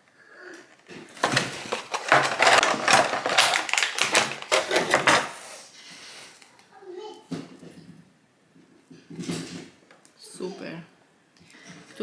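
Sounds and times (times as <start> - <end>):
packaging crinkling: 0.8 - 5.4.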